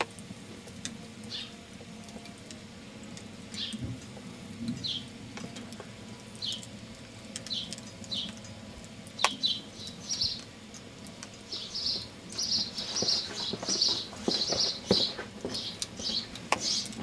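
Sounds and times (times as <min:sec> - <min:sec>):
small birds chirping: 0:01.2 - 0:01.6, 0:03.5 - 0:03.9, 0:04.8 - 0:05.1, 0:06.4 - 0:06.8, 0:07.4 - 0:08.5, 0:09.1 - 0:10.5, 0:11.4 - 0:17.0.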